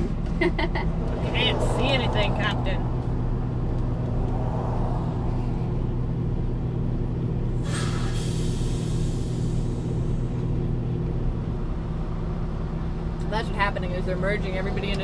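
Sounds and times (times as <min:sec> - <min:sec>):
diesel truck engine droning: 0:00.0 - 0:15.0
air brake hiss: 0:07.6 - 0:09.9.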